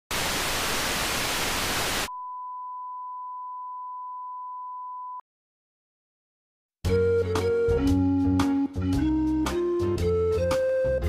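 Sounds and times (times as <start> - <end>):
television static hiss: 0.1 - 2.1.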